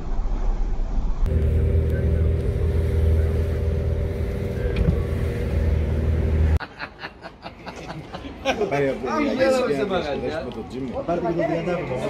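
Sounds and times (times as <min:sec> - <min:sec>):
car engine and road noise: 0:00.0 - 0:06.6.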